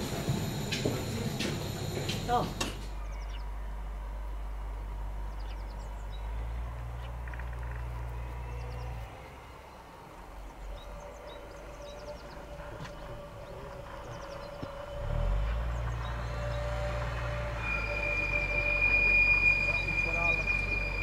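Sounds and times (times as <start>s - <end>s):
small birds chirping: 5.3s - 9.0s, 10.4s - 14.9s.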